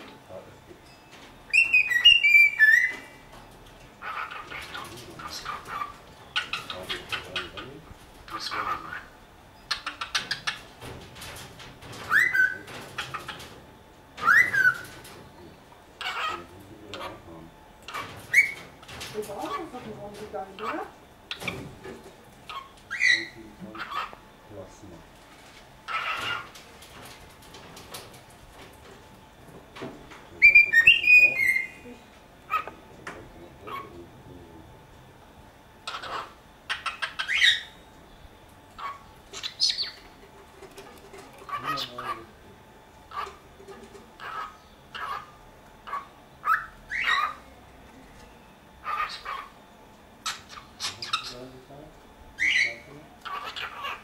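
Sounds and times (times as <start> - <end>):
cockatiel whistling: 1.5 - 3.1, 12.1 - 12.7, 14.2 - 14.9, 30.4 - 31.8.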